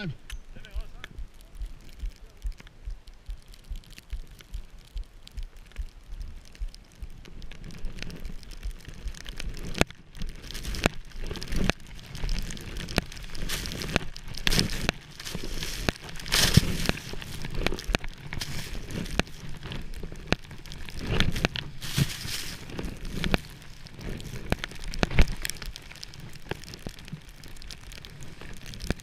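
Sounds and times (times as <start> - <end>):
sharp clicks and crackles: 0.0 - 29.0
skis swishing through snow: 11.5 - 26.0.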